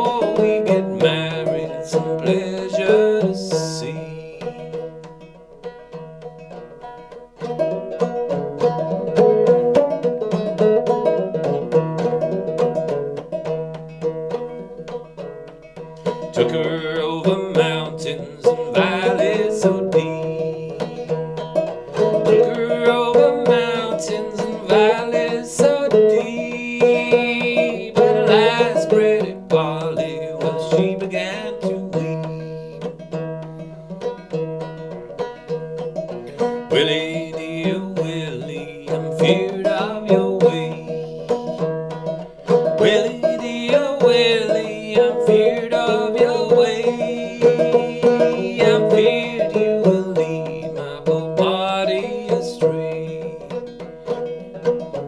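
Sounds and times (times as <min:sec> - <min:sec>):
man singing: 0:00.0 - 0:05.3, 0:16.0 - 0:33.7, 0:36.2 - 0:54.2
banjo played clawhammer: 0:00.0 - 0:55.0.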